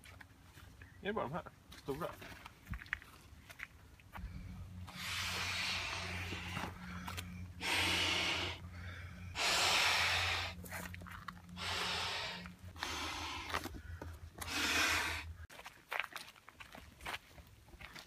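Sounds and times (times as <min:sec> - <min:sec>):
low steady hum: 0:00.0 - 0:15.5
man blowing into boat valve: 0:04.9 - 0:06.7, 0:07.6 - 0:08.6, 0:09.4 - 0:10.6, 0:11.6 - 0:13.6.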